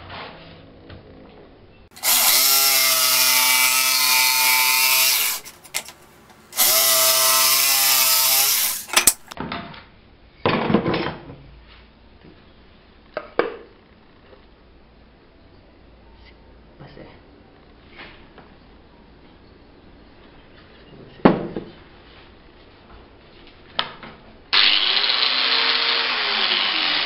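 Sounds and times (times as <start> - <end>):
electric jigsaw cutting wood: 2.0 - 5.5, 6.6 - 9.2, 24.5 - 27.0.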